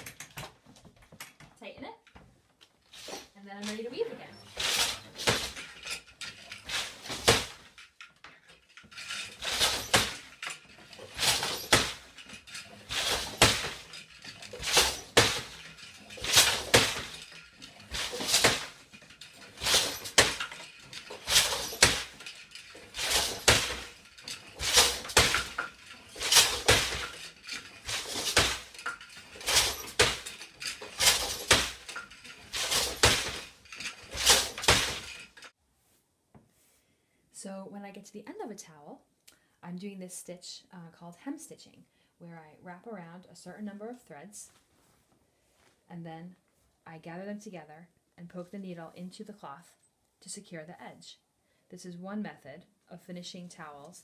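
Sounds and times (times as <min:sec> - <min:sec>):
loom wooden knocks and clacks: 0:00.0 - 0:35.5.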